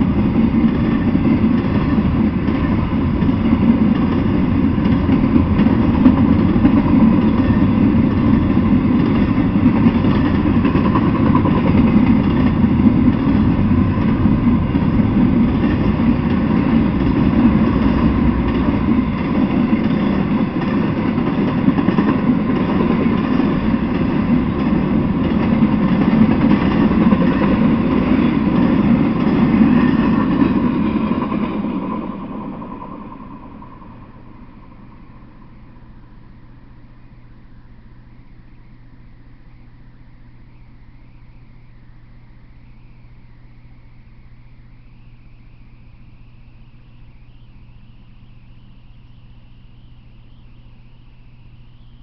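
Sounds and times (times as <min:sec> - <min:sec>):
steel wheels rumbling on rails: 0:00.0 - 0:41.2
freight train rolling past: 0:00.0 - 0:42.5.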